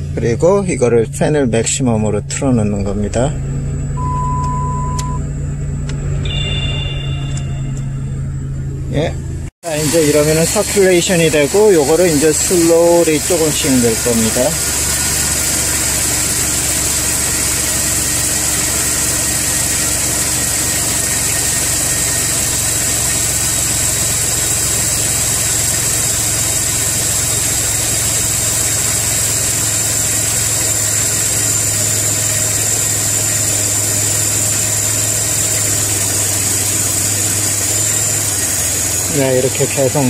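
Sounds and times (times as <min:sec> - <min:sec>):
car engine idling: 0:00.0 - 0:40.0
high-pitched whine: 0:04.0 - 0:12.6.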